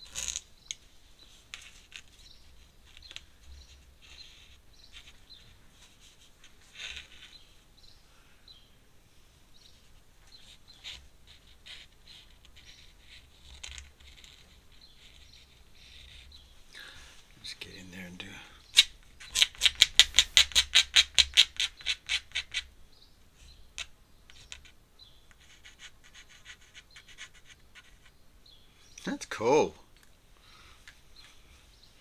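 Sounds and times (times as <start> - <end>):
ink brush scratching on paper: 10.3 - 16.5, 24.3 - 28.1.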